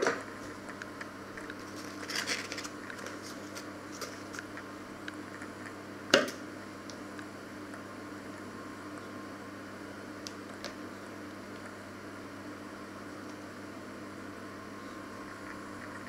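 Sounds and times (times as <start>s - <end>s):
foil wrapper crinkling: 1.4s - 4.5s.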